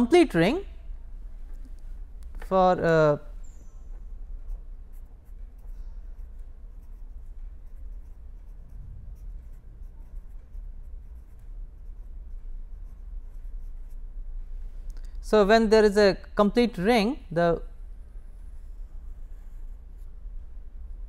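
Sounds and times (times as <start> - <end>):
steady low hum: 0.0 - 21.0
pen scratching on paper: 4.4 - 14.0.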